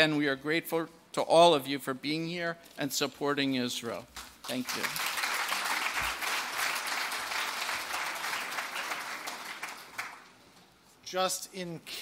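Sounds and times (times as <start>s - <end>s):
audience applauding: 4.4s - 10.4s.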